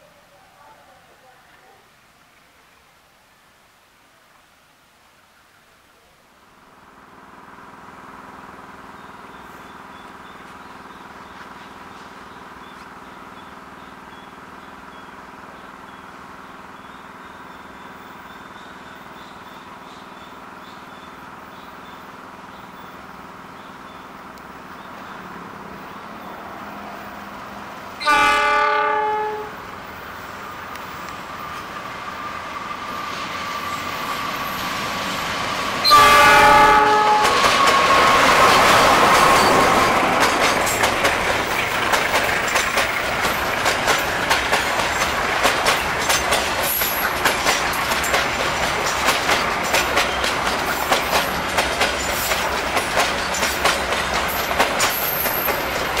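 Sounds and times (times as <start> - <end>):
locomotive engine drone: 6.5 - 28.4
locomotive multi-tone horn: 28.0 - 29.7, 35.8 - 38.5.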